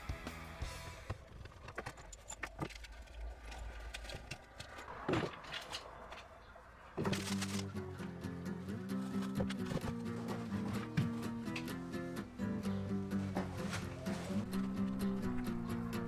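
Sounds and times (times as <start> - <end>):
music: 0.0 - 1.1, 7.2 - 16.0.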